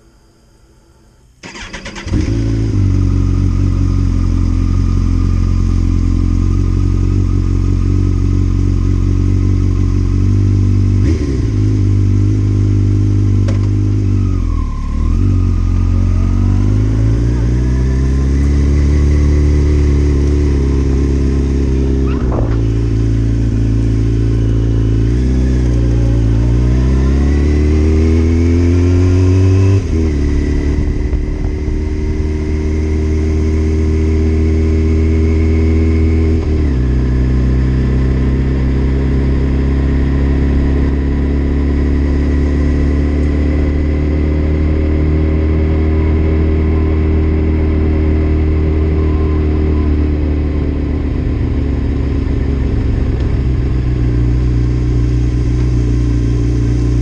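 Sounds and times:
motorcycle engine revving: 1.4s - 57.0s.

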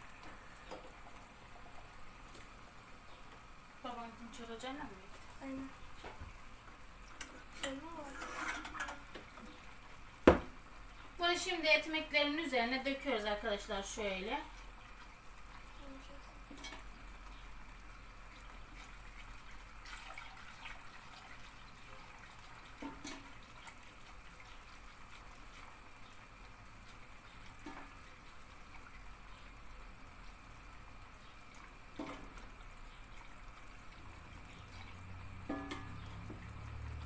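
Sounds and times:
liquid trickling: 0.0s - 37.0s
ladle clinking against metal pot: 35.5s - 36.0s.

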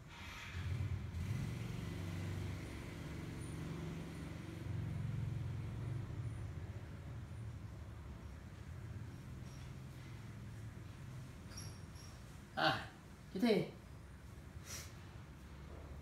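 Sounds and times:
vehicle engine hum: 0.2s - 12.4s.

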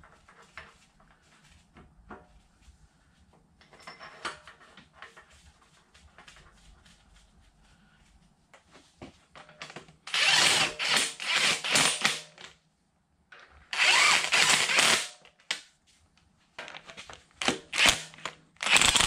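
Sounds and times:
cordless driver running nuts down: 13.7s - 15.1s, 17.4s - 19.0s.

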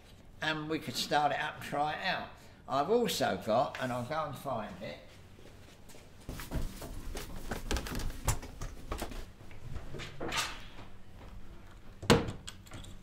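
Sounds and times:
footsteps: 4.7s - 10.0s
knocks and rustles: 6.2s - 13.0s.

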